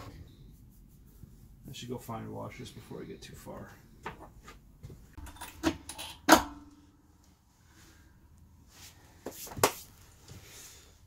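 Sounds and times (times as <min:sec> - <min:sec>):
metal tools clicking and clanking: 0:05.2 - 0:06.5.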